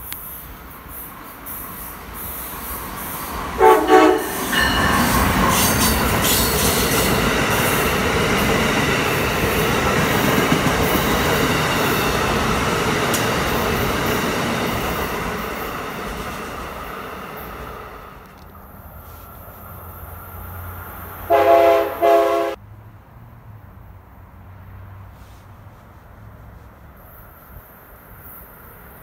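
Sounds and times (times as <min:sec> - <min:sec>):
train wheels rushing on rails: 0:00.0 - 0:22.6
train horn blast: 0:03.6 - 0:04.6, 0:21.3 - 0:22.6.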